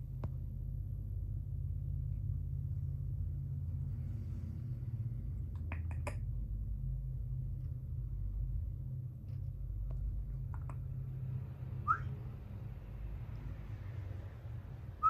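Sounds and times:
steady low hum: 0:00.0 - 0:15.0
sharp clicks: 0:10.4 - 0:10.9.

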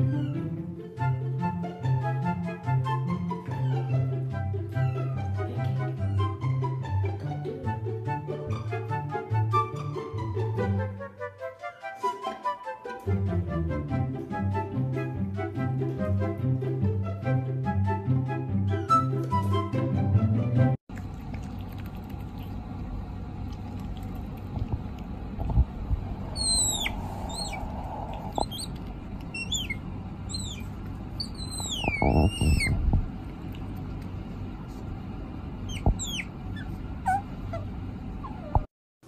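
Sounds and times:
low bumps: 0:22.6 - 0:38.7
otter squeaking chirps: 0:26.1 - 0:33.0, 0:35.6 - 0:38.7.

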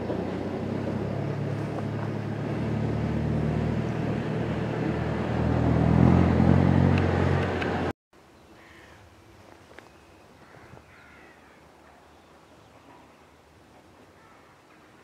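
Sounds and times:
vehicle engine running: 0:00.0 - 0:07.9.

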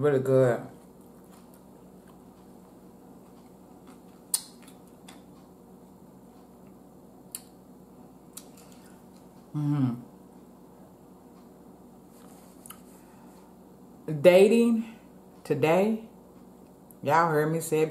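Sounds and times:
person chewing salad: 0:00.7 - 0:05.6, 0:08.3 - 0:09.5, 0:12.1 - 0:13.0
person humming mm: 0:09.5 - 0:10.1.

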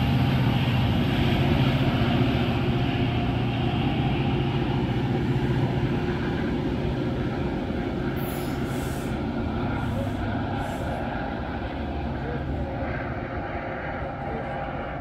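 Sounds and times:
low engine hum: 0:00.0 - 0:15.0
train wheels rumbling on rails: 0:00.0 - 0:15.0
short hisses: 0:08.2 - 0:09.2.

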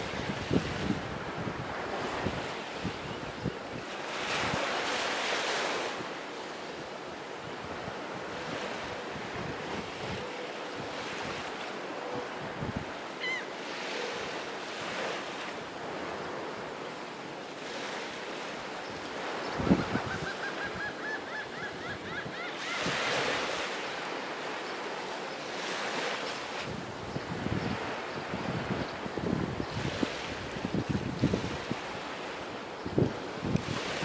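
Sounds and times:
small waves washing onto beach: 0:00.0 - 0:34.0.

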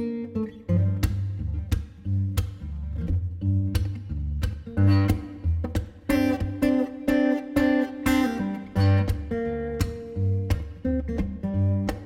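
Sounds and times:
strummed acoustic guitar: 0:04.7 - 0:12.0.

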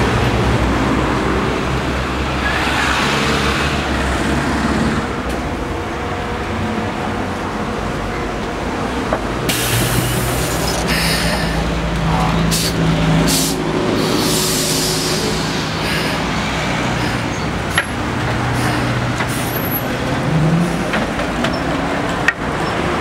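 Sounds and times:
trolleybus electric drive humming: 0:00.0 - 0:23.0
air hiss: 0:12.5 - 0:16.4.

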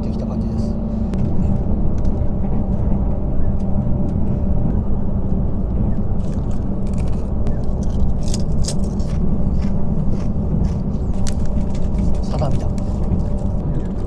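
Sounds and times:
train rumble inside car: 0:00.0 - 0:14.0
crisp being crunched: 0:06.2 - 0:13.5.

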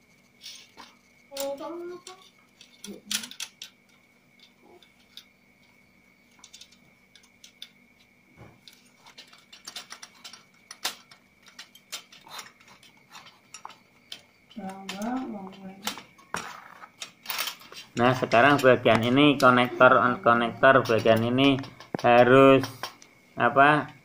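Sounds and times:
metal clicks of bolts and nuts: 0:02.6 - 0:05.3, 0:08.6 - 0:16.0.

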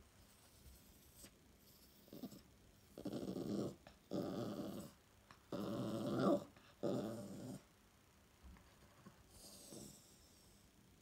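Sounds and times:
dog growling: 0:01.7 - 0:07.7, 0:09.4 - 0:10.1.

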